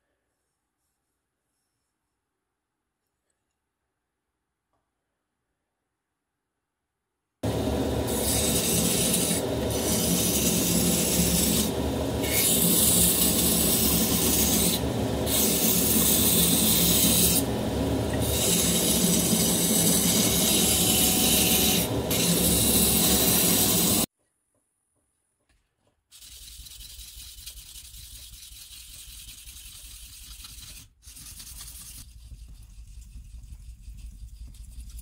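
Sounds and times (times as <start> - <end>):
low motor hum: 7.4 - 24.1.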